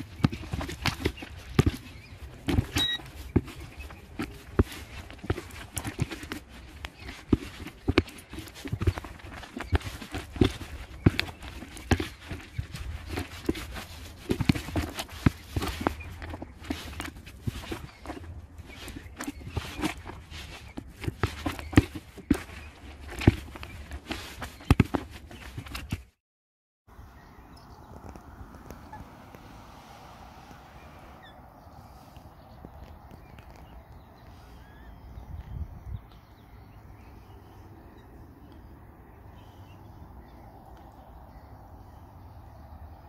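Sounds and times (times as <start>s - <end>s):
wind rumble on microphone: 26.9s - 43.0s
faint bird calls: 27.0s - 42.7s.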